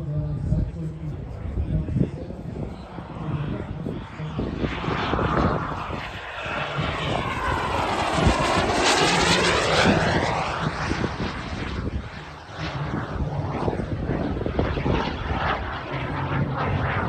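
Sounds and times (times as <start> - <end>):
model jet engine whine passing: 0.0 - 17.0.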